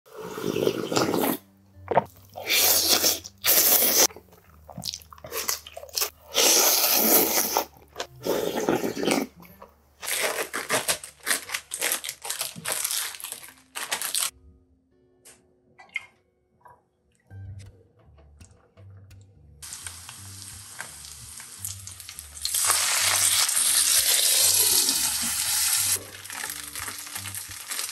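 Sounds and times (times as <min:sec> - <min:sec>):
slurping noodles: 0:00.1 - 0:01.4, 0:02.4 - 0:04.1, 0:05.3 - 0:09.4
crunchy bites and chewing: 0:10.0 - 0:14.3
plastic package crinkling: 0:10.0 - 0:14.3.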